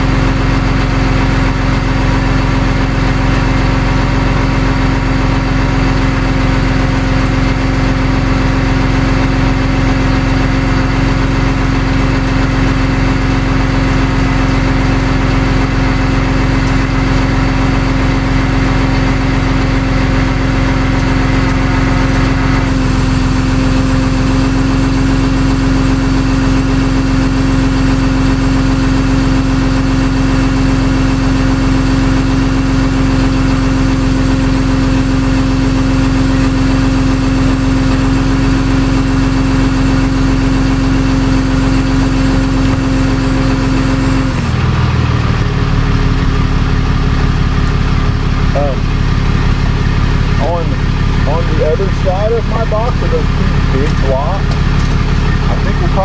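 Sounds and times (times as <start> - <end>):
vehicle engine idling: 0.0 - 56.0.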